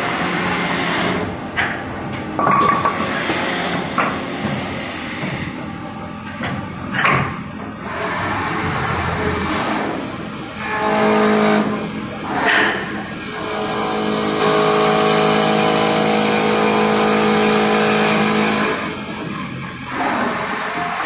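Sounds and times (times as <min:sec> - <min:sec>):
wood lathe cutting: 0:07.8 - 0:12.5, 0:13.2 - 0:19.2.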